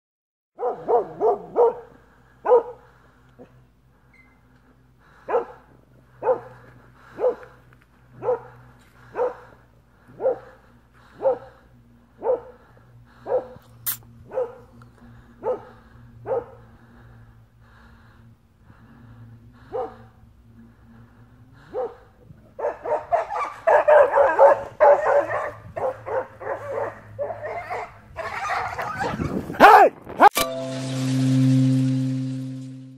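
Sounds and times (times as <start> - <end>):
dog barking loudly: 0.6 - 2.8, 5.2 - 5.6, 6.2 - 7.5, 8.2 - 10.6, 11.2 - 11.6, 12.2 - 12.6, 13.2 - 13.6, 14.3 - 14.7, 15.4 - 16.7, 19.7 - 20.1, 21.6 - 22.0, 22.6 - 29.9.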